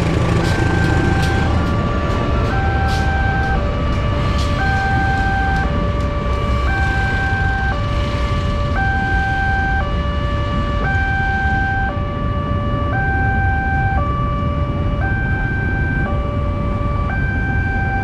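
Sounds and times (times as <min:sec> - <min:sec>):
idling motorbikes and cars: 0:00.0 - 0:06.2
level crossing two-tone alarm: 0:00.0 - 0:18.0.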